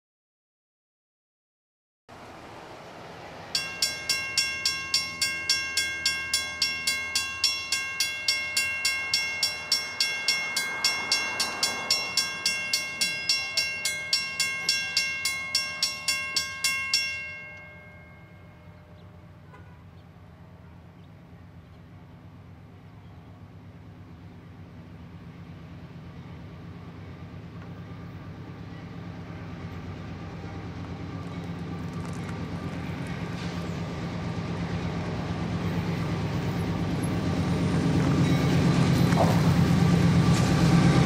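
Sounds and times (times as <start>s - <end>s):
railroad crossing bell ringing: 3.5s - 19.7s, 32.7s - 41.0s.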